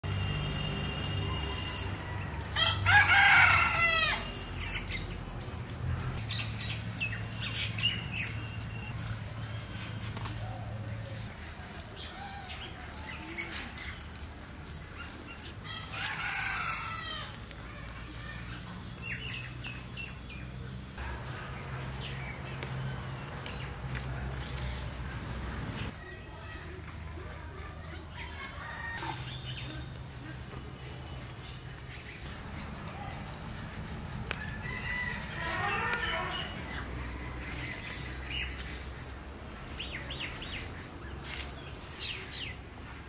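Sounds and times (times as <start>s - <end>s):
rooster crowing: 1.5s - 4.4s, 15.6s - 17.4s, 34.3s - 37.4s.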